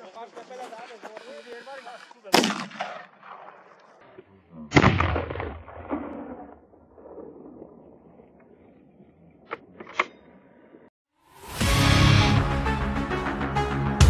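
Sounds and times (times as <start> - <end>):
rifle shots echoing: 2.3 - 4.1, 4.7 - 7.8.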